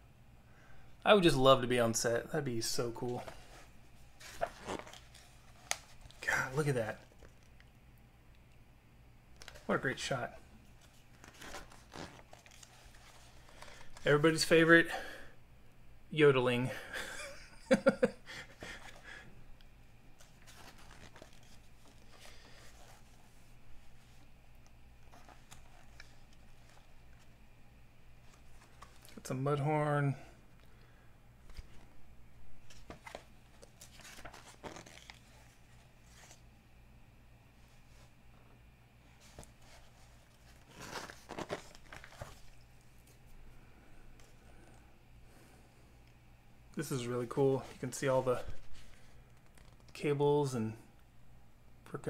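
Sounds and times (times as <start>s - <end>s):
magazine pages rustling: 2.5s - 7.7s, 9.3s - 14.5s, 20.1s - 27.4s, 28.2s - 29.7s, 31.4s - 32.0s, 32.6s - 36.5s, 39.0s - 43.4s, 46.8s - 50.0s.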